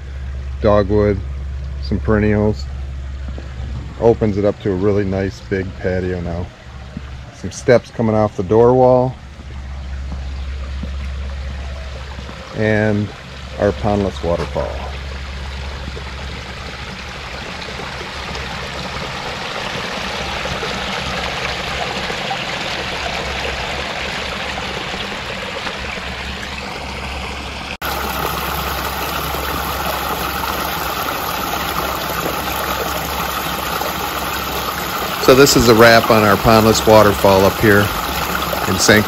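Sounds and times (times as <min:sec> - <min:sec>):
small waterfall splashing over rocks: 0:12.0 - 0:39.0.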